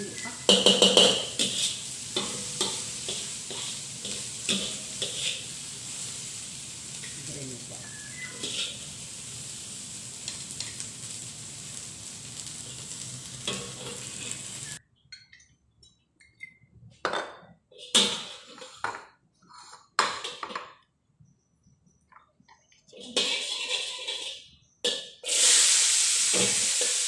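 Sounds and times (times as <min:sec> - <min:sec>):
vegetables sizzling in a wok: 0:00.0 - 0:14.8, 0:17.8 - 0:18.8, 0:23.0 - 0:27.0
metal utensils clanking on wok: 0:00.1 - 0:06.2, 0:06.8 - 0:09.2, 0:10.2 - 0:10.9, 0:12.4 - 0:15.4, 0:17.8 - 0:18.9, 0:20.0 - 0:20.6, 0:22.9 - 0:25.2
metal spatula scraping: 0:00.2 - 0:09.6, 0:12.3 - 0:14.8, 0:17.7 - 0:18.9, 0:22.9 - 0:24.6.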